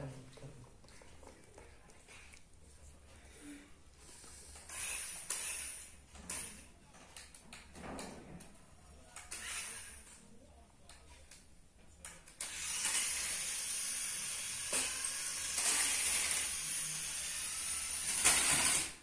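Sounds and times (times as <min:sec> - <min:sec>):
toy car motor whirring: 0:04.6 - 0:06.6, 0:09.2 - 0:10.2, 0:12.4 - 0:19.0.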